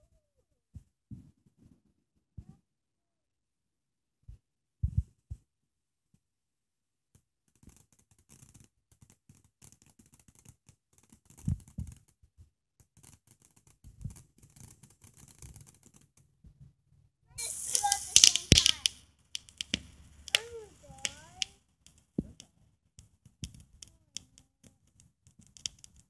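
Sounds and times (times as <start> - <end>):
firework fountain crackling and hiss: 17.4 - 26.0.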